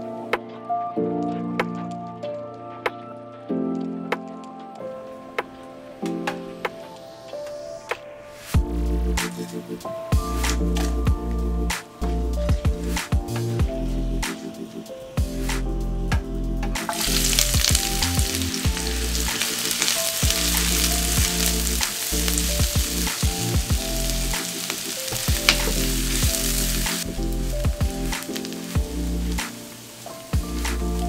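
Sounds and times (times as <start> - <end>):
shallots sizzling in hot oil: 16.9 - 31.0.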